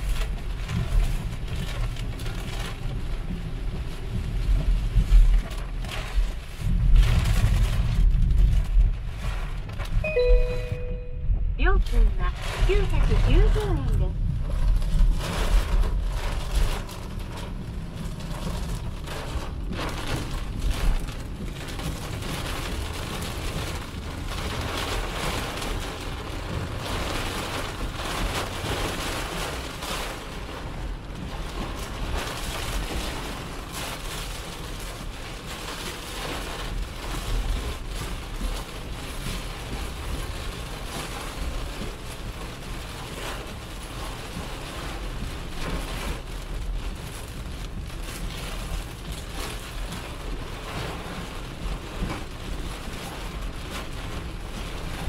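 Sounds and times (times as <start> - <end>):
heavy rain drumming on a car: 0.0 - 55.0
tyre and wind noise: 0.0 - 55.0.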